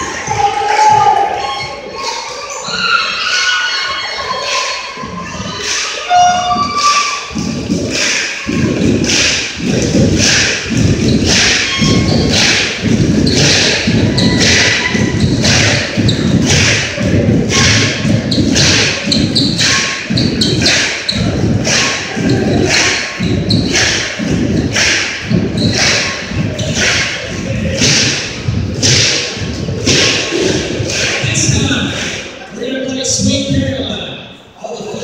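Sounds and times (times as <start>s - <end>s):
crowd stomping on bleachers: 5.0s - 32.4s.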